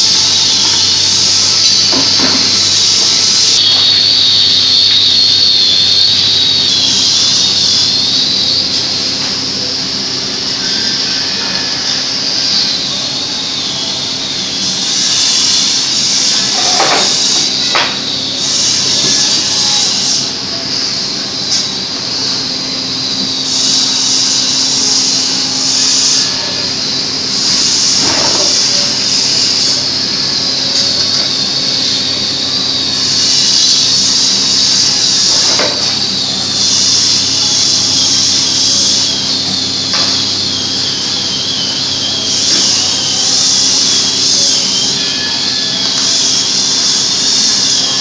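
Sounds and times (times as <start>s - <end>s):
mechanical hum with hiss: 0.0s - 48.0s.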